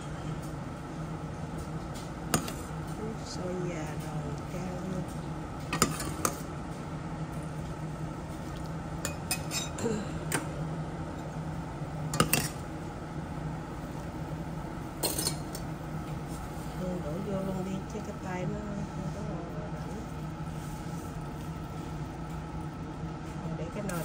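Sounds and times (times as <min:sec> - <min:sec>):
steady low hum: 0:00.0 - 0:24.0
utensils clinking against bowls: 0:09.0 - 0:09.9, 0:15.0 - 0:15.6.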